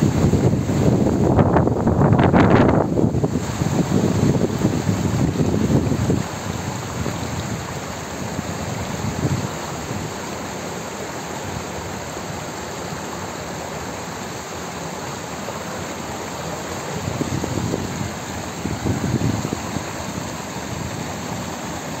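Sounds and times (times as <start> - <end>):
wind buffeting microphone: 0.0 - 7.7, 8.3 - 10.1, 17.0 - 21.5
water rushing over weirs: 0.0 - 22.0.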